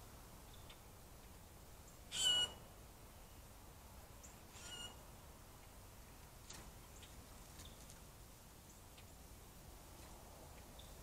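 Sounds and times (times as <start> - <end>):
bird call: 2.1 - 2.6.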